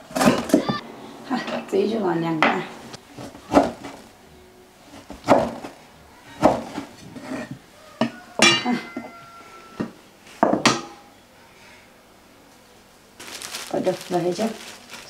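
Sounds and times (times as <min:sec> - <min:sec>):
cleaver chopping on wooden board: 0:05.2 - 0:05.7.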